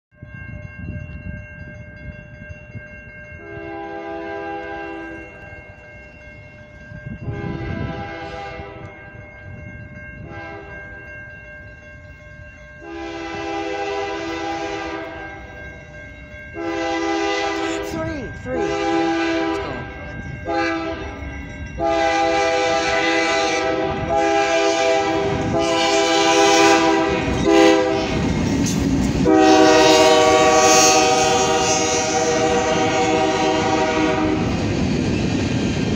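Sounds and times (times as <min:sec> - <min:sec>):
crossing bell ringing: 0:00.1 - 0:35.9
locomotive air horn blasts: 0:03.4 - 0:05.2, 0:07.2 - 0:08.9, 0:10.2 - 0:10.8, 0:12.8 - 0:15.4, 0:16.6 - 0:17.9, 0:18.6 - 0:21.1, 0:21.8 - 0:28.3, 0:29.2 - 0:34.6.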